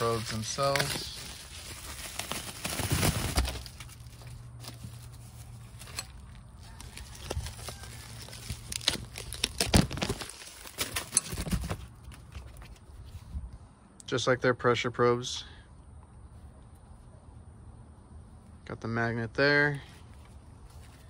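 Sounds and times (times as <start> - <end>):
bubble wrap crackling: 0.0 - 5.8, 6.6 - 11.1.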